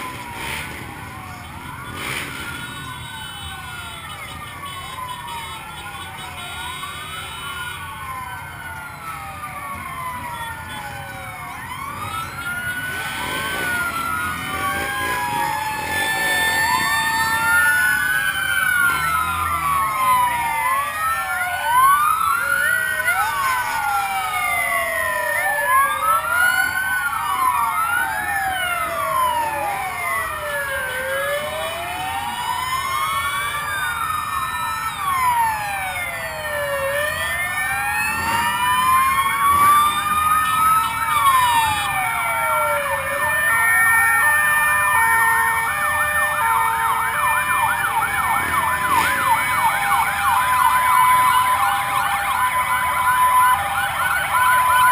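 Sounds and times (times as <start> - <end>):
fast yelping siren: 0.0 - 54.9
sirens wailing: 0.0 - 54.9.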